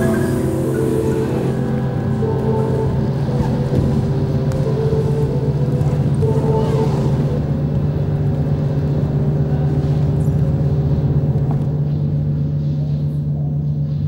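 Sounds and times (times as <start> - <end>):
droning ambient music: 0.0 - 14.0.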